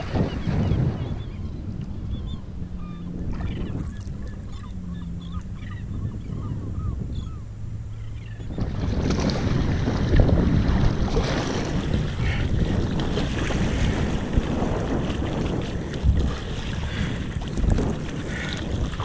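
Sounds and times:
birds chirping: 0.0s - 8.7s
wind on the microphone: 0.0s - 19.0s
low engine drone: 1.3s - 13.9s
rushing water: 8.6s - 19.0s.

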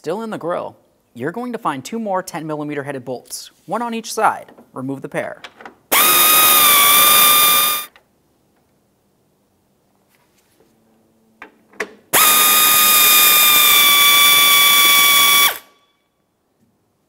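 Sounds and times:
electric ratchet motor whine: 5.9s - 7.9s, 12.2s - 15.7s.

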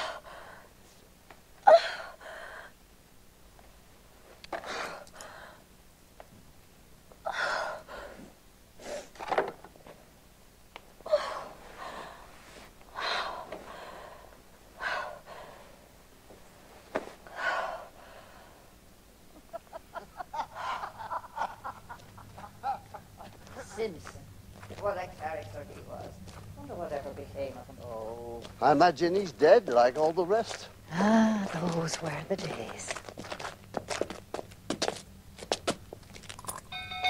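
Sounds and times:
woman gasping breaths: 1.7s - 2.8s, 7.2s - 9.1s, 11.0s - 15.8s.

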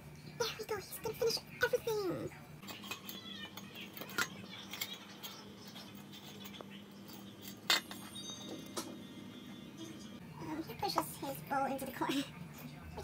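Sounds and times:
metal bowl clinking on floor: 2.6s - 9.2s.

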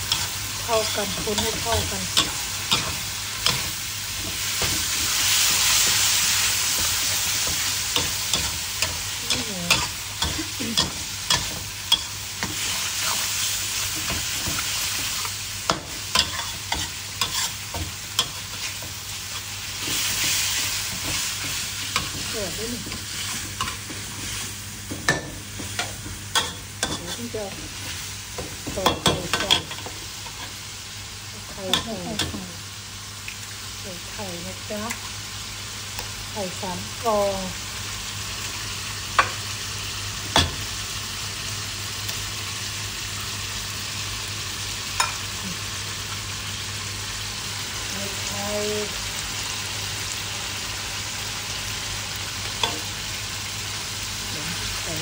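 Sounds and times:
food sizzling in oil in a wok: 0.0s - 55.0s
metal spatula scraping a pan: 16.1s - 18.8s.

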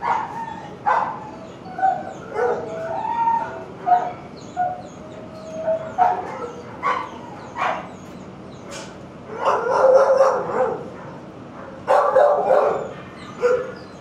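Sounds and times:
dogs barking: 0.0s - 14.0s
dogs yipping and whining: 0.0s - 14.0s.

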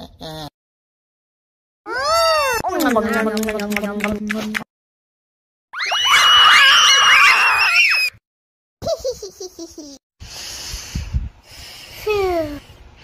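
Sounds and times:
cartoon voices screaming: 5.8s - 8.2s.

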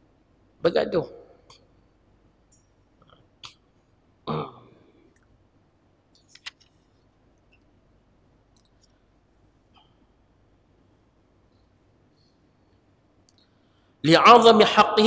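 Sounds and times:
man coughing: 4.3s - 4.7s.

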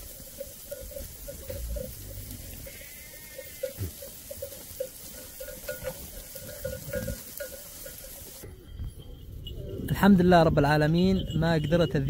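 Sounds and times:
water running and gurgling: 0.0s - 8.5s.

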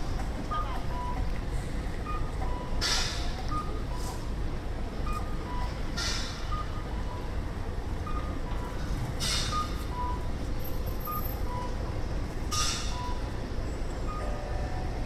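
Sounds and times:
city traffic rumble: 0.0s - 15.0s.

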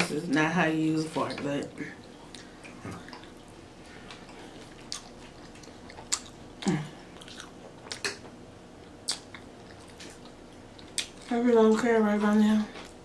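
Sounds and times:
person chewing food: 2.0s - 11.8s.

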